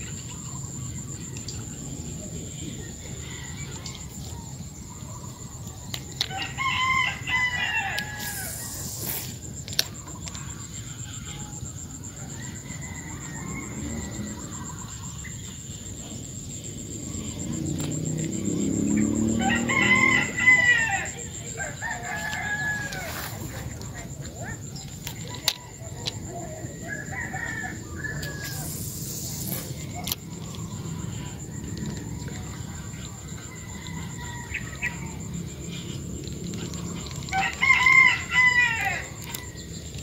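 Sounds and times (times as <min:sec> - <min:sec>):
rooster crowing: 0:06.2 - 0:08.8, 0:11.3 - 0:15.0, 0:17.2 - 0:28.8, 0:29.8 - 0:39.8.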